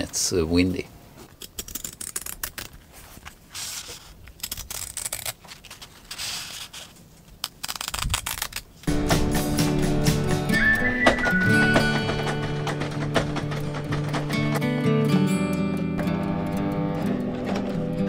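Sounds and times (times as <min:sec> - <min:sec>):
scissors snipping fabric: 0:04.4 - 0:05.4
music: 0:08.9 - 0:18.0.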